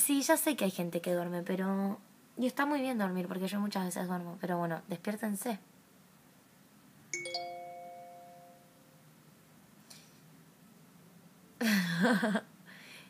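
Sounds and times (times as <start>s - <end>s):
bell-like ding: 7.2s - 8.9s.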